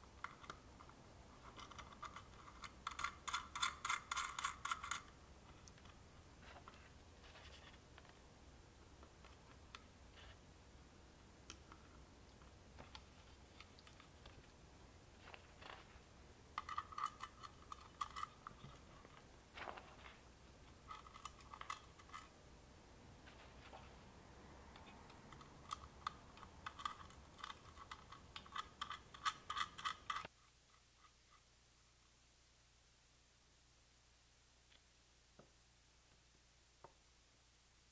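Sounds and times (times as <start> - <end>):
small metallic clicks: 24.7 - 30.3.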